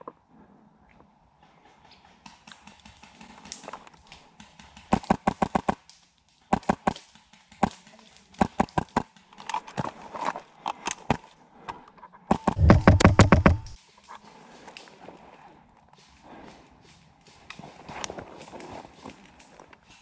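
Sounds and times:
airsoft rifle firing bursts: 0:12.3 - 0:13.8.

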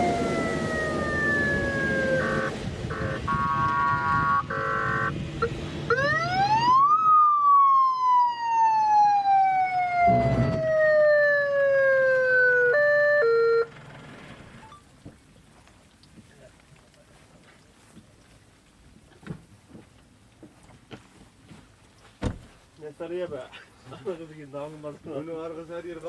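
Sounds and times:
electronic siren wailing: 0:00.0 - 0:13.7.

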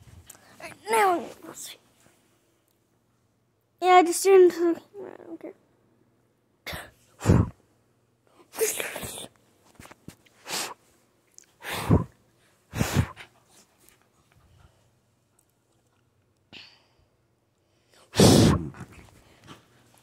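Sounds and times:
sneeze-like blasts of breath: 0:11.6 - 0:12.1, 0:18.1 - 0:18.8
faint sniffs: 0:12.7 - 0:13.7.

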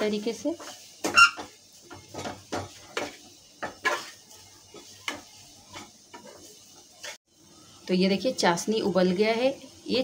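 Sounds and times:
steel spatula scraping a pan: 0:00.0 - 0:07.2.

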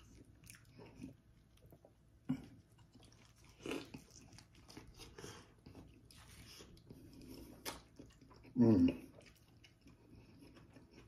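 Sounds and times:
crunchy biting and chewing: 0:02.4 - 0:11.0.

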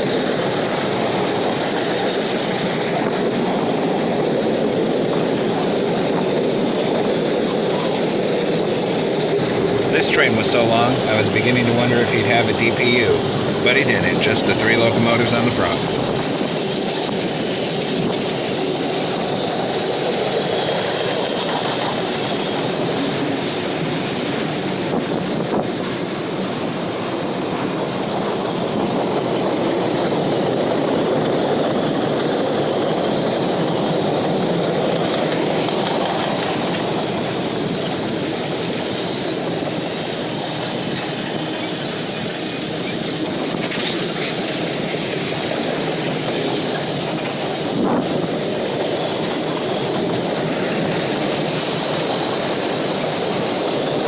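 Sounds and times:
train wheels on rails: 0:00.0 - 0:54.0.

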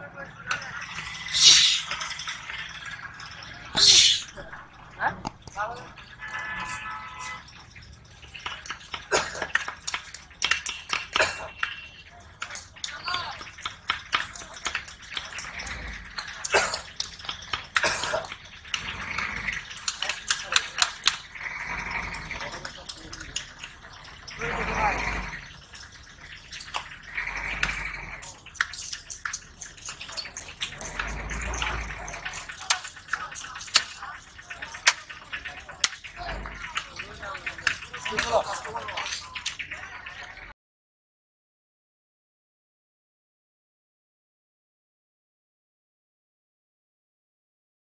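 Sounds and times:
short hissing noise: 0:01.3 - 0:01.9, 0:03.8 - 0:04.3.

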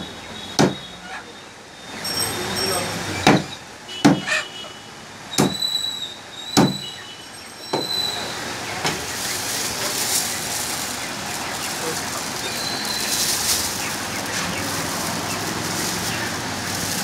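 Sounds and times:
cleaver chopping on wooden block: 0:00.6 - 0:00.8, 0:03.3 - 0:04.3, 0:05.4 - 0:05.6, 0:06.6 - 0:06.8.

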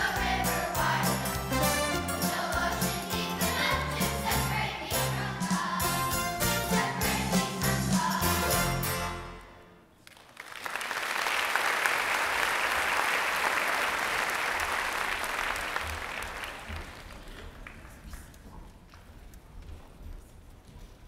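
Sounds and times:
audience applauding: 0:10.0 - 0:18.3.

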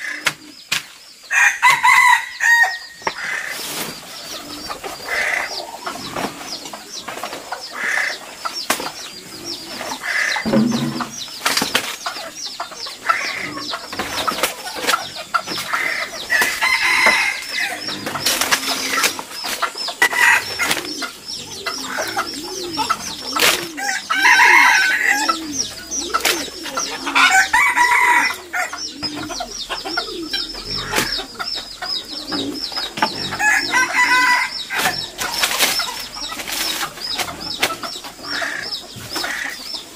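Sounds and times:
chickens clucking: 0:00.0 - 0:39.9
banana leaves rustling: 0:34.0 - 0:38.2.

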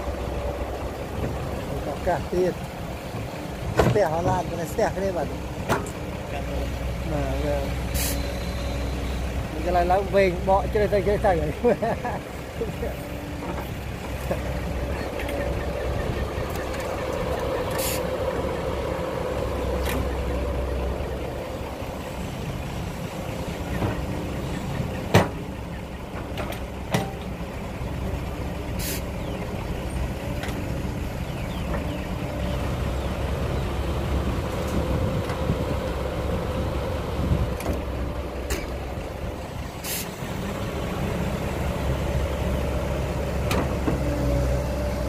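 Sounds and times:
excavator diesel engine running: 0:00.0 - 0:45.0
short hisses: 0:07.9 - 0:08.3, 0:28.8 - 0:29.1.

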